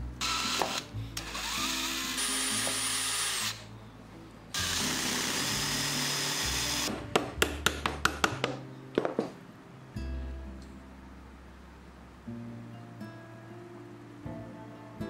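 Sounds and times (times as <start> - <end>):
power drill boring into wood: 0.2 - 3.7, 4.6 - 6.9.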